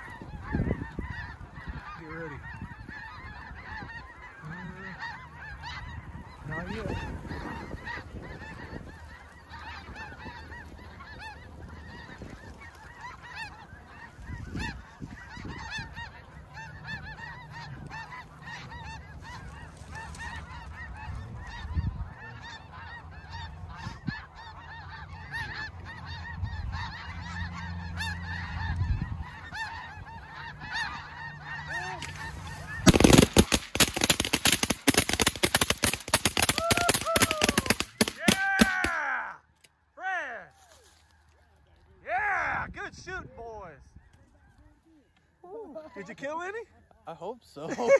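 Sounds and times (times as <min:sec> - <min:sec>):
geese honking: 0:00.0 - 0:47.9
shotgun fire: 0:32.8 - 0:38.9.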